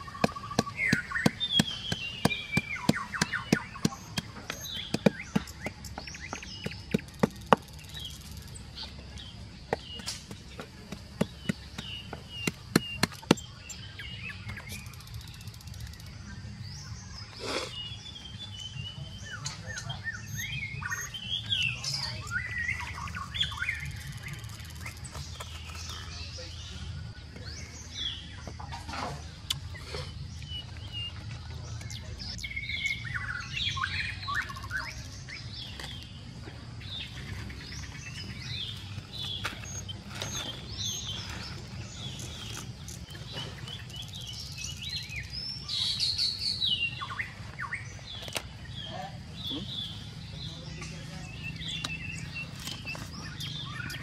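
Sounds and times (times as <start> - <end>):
pestle pounding in mortar: 0.0 - 7.8, 9.7 - 13.6
birds chirping: 0.0 - 54.0.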